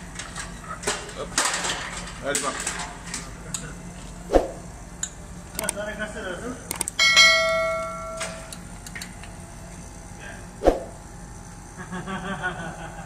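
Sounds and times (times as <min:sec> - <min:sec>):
click: 0:05.0 - 0:05.8, 0:06.7 - 0:07.0
metal clang ringing: 0:07.0 - 0:08.6.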